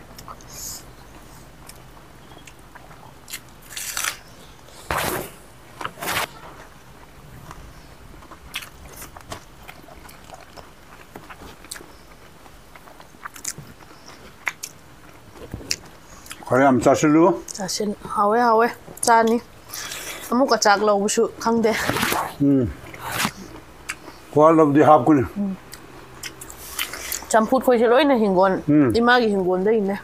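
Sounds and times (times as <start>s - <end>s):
close-up chewing and mouth clicks: 1.6s - 4.3s, 8.2s - 16.5s, 25.7s - 27.3s.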